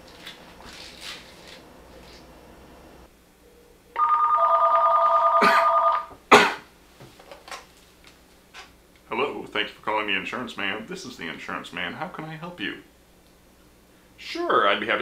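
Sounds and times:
telephone ringer trilling: 4.0s - 6.1s.

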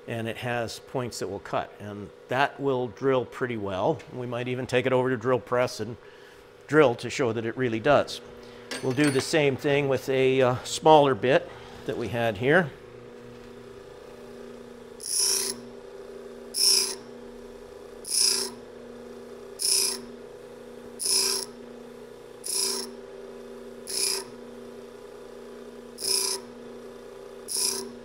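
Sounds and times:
bench grinder humming: 7.4s - 28.0s
drill bit grinding on wheel: 14.6s - 15.9s, 16.5s - 17.1s, 18.0s - 18.7s, 19.4s - 20.3s, 21.0s - 21.7s, 22.4s - 24.8s, 25.9s - 26.6s, 27.4s - 28.0s.

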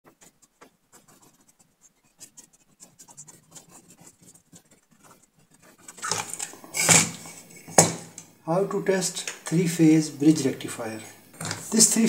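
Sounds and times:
pen scratching on paper: 0.0s - 7.6s.

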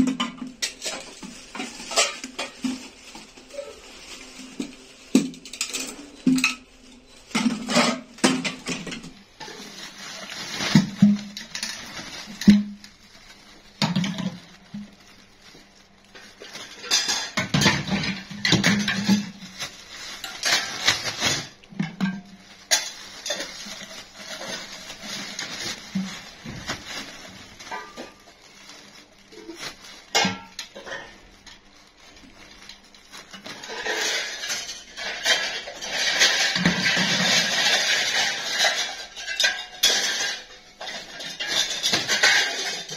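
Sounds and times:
plastic bags rustling: 0.0s - 42.9s
hard plastic parts clattering: 33.3s - 42.9s.

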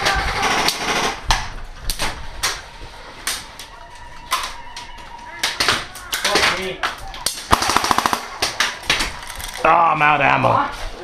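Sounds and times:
airsoft gun shots: 7.5s - 8.6s.

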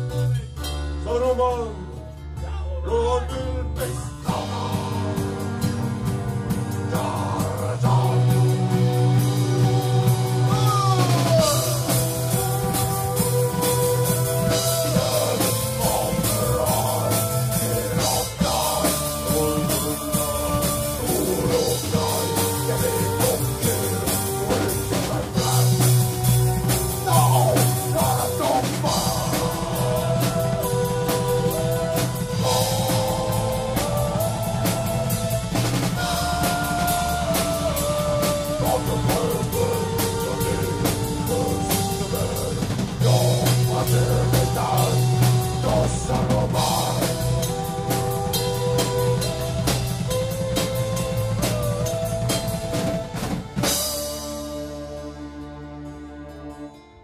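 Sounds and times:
acoustic guitar: 0.0s - 57.0s
person singing: 1.0s - 5.9s, 6.8s - 55.4s
drum kit: 3.8s - 55.1s
steady low drone note: 4.3s - 56.9s.

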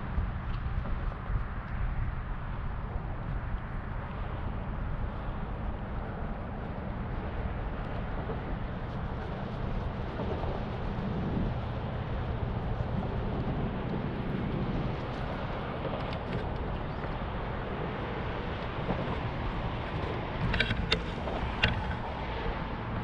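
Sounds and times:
wind rumble on microphone: 0.0s - 23.0s
sharp clicks and knocks: 19.9s - 22.1s.

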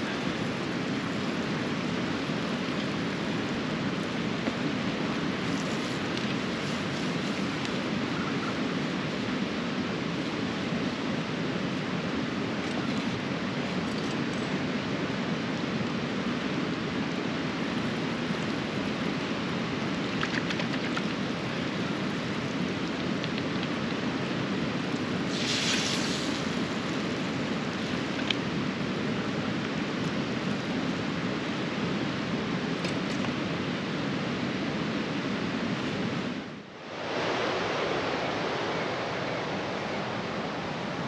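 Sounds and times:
river rushing: 0.0s - 41.0s
brief hiss: 25.3s - 26.5s.

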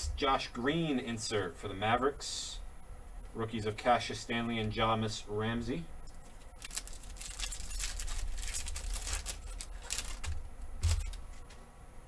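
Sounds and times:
card pack wrapper tearing and crinkling: 6.2s - 11.2s.

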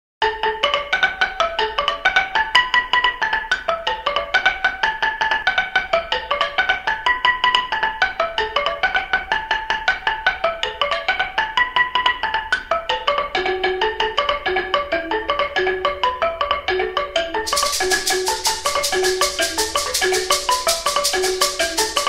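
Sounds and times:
melody of struck notes: 13.2s - 22.0s.

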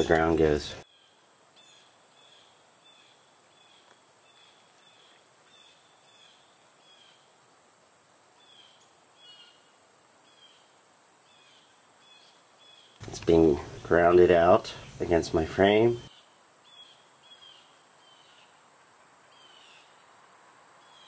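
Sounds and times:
insect drone: 0.1s - 21.0s.

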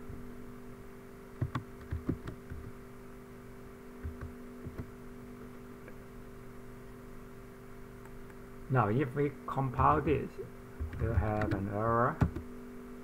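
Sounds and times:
steady electrical hum: 0.0s - 13.0s
keyboard keystrokes: 1.4s - 2.7s, 4.0s - 4.9s, 10.8s - 12.5s.

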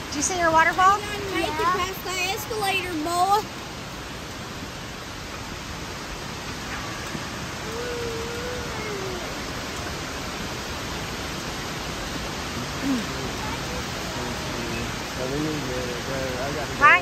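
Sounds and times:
indoor waterfall rushing: 0.0s - 17.0s
faint voice: 6.8s - 9.7s, 12.5s - 17.0s.

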